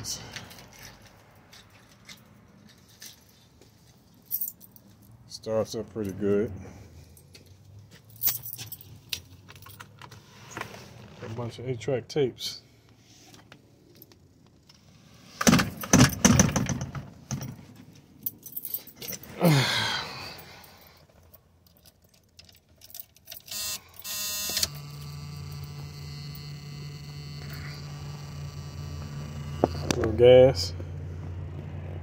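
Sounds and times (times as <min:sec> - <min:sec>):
car keys jangling: 0:00.4 - 0:05.2, 0:05.9 - 0:10.2, 0:17.2 - 0:19.6, 0:20.4 - 0:26.5.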